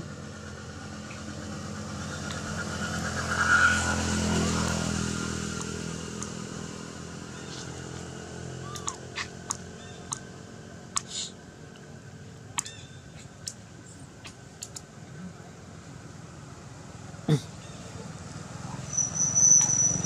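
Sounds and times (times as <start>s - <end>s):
vehicle engine passing: 0.0s - 10.4s.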